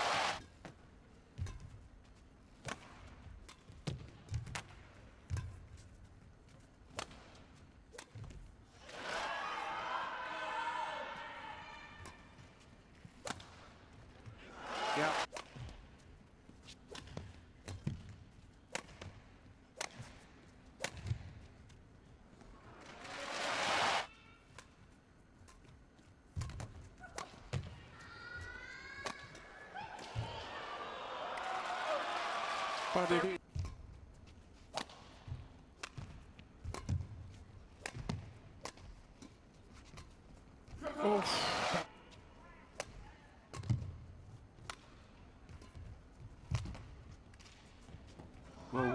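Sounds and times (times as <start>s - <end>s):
faint arena background noise: 0.0s - 48.9s
rackets striking shuttlecock: 2.6s - 5.8s, 18.7s - 21.4s, 34.6s - 40.2s.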